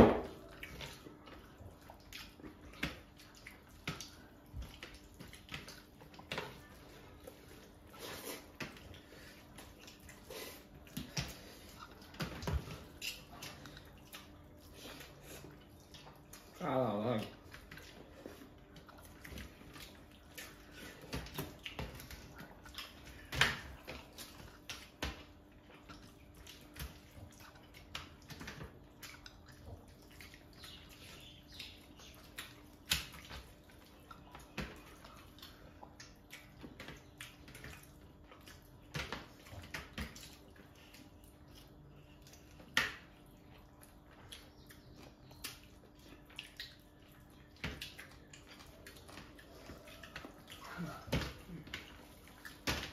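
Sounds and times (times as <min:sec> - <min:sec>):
hands squishing food: 0:00.0 - 0:52.9
mouths eating: 0:00.4 - 0:52.9.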